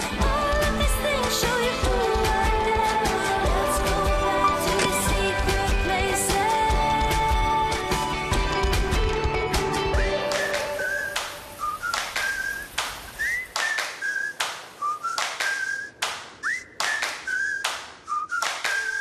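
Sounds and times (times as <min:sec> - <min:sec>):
whistled melody: 0:09.7 - 0:19.0.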